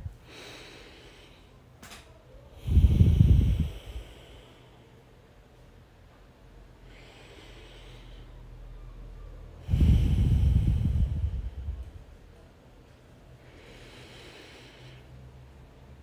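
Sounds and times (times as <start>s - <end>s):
person breathing deeply: 0.0s - 1.7s, 2.4s - 5.0s, 6.8s - 8.7s, 9.6s - 12.0s, 13.4s - 16.0s
low rumble: 9.7s - 12.2s.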